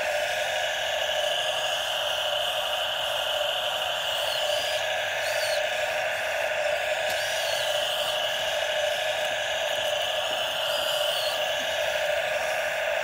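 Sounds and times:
high-pitched electric motor buzzing: 0.0s - 13.0s.

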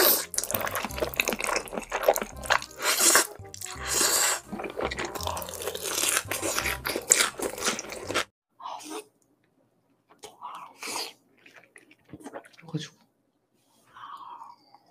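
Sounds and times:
bite into fried food: 0.0s - 8.3s
wet slurping and chewing noodles: 0.0s - 8.3s, 10.2s - 12.6s.

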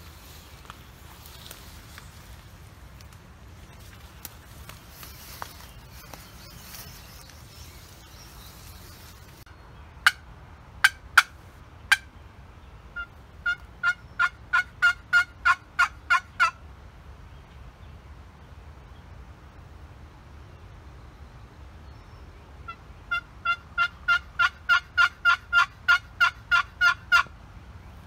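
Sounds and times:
turkey yelping: 13.0s - 16.5s, 23.1s - 27.3s
turkey clucks: 13.0s - 16.6s, 23.1s - 27.3s.

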